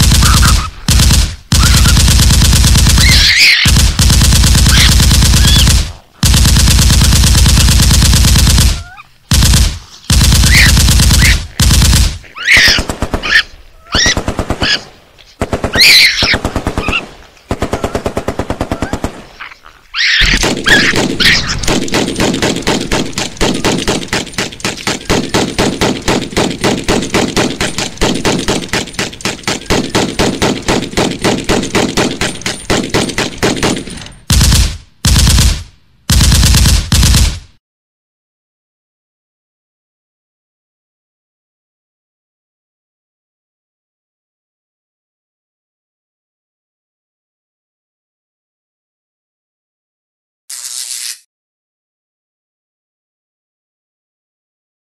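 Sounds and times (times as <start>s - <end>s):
high squeals: 3.0s - 3.7s.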